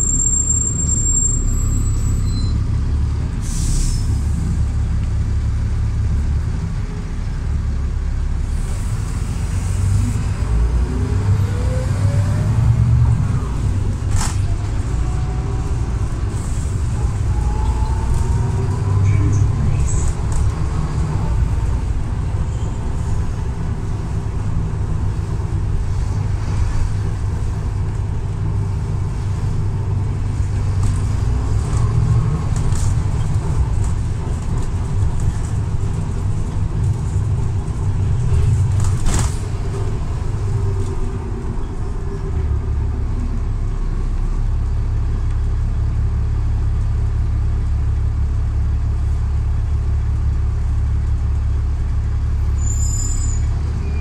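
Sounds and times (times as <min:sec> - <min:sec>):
bus diesel engine running: 0:00.0 - 0:54.0
bus body rattling: 0:13.6 - 0:42.6.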